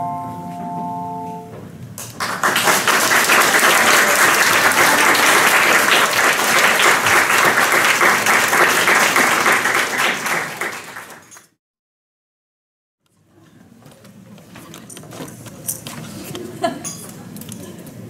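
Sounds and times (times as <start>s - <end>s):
bell chord: 0.0s - 1.6s
audience applauding: 2.0s - 11.5s.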